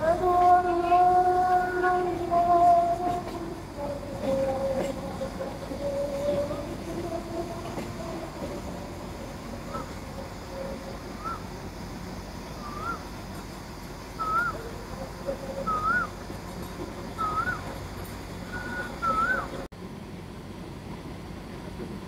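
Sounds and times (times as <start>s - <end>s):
moving train rumbling: 0.0s - 22.0s
whistled call: 9.6s - 11.6s, 12.5s - 13.2s, 14.1s - 16.2s, 17.2s - 17.7s, 18.4s - 19.7s.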